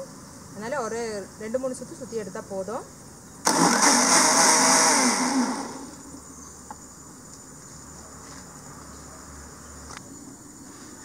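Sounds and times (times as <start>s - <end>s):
mixer grinder motor running: 3.5s - 6.0s.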